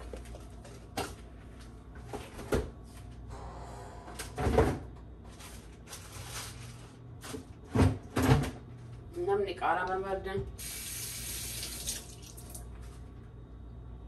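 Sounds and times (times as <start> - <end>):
low steady hum: 0.0 - 14.0
kitchen items knocking and clattering: 7.3 - 8.6.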